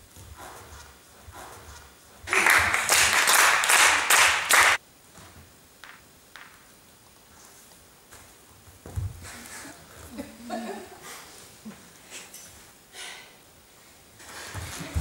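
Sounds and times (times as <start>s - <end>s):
hand clapping: 2.3s - 4.8s.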